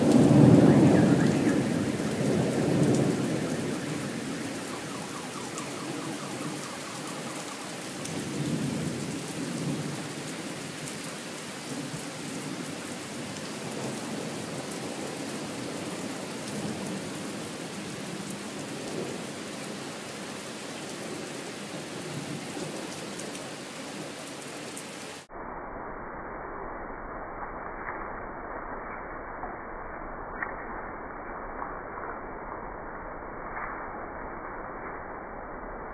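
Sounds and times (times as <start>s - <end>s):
heavy rain pouring: 0.0s - 25.3s
thunder rumbling: 0.0s - 25.3s.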